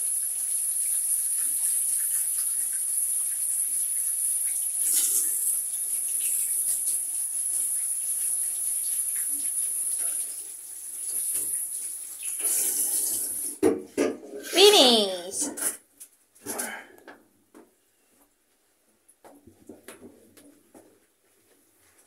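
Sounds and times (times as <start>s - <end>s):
shower water spraying: 0.0s - 13.6s.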